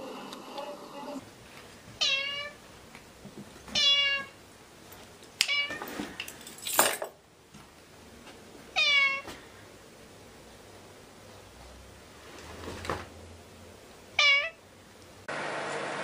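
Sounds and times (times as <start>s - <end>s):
cat meowing: 2.0s - 2.6s, 3.7s - 4.4s, 8.8s - 9.3s, 14.2s - 14.6s.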